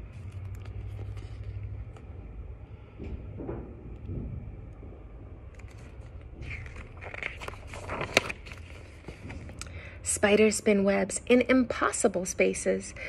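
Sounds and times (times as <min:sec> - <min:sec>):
book handling noise: 0:00.0 - 0:04.2, 0:05.4 - 0:09.8
low room rumble: 0:00.0 - 0:13.0.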